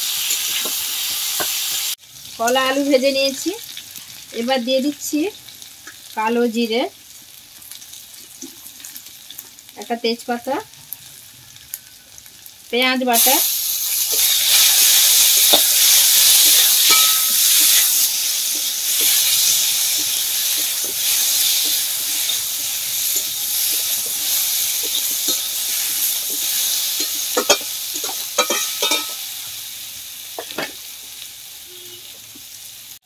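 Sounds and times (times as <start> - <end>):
food sizzling in oil: 0.0 - 33.0
metal spatula scraping a pan: 13.7 - 29.3.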